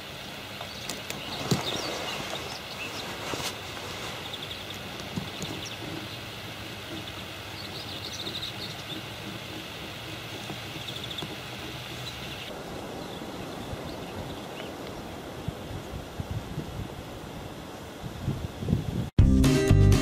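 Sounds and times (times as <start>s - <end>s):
outdoor background noise: 0.0s - 19.1s
high bird chirps: 4.2s - 9.8s, 10.5s - 14.8s.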